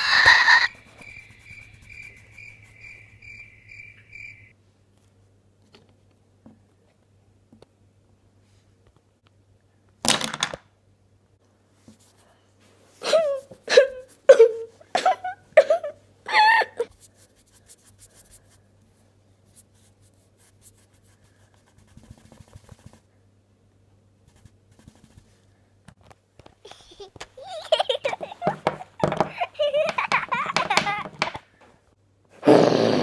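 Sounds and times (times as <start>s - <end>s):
high-pitched vocal squeaks: 0.0s - 0.8s.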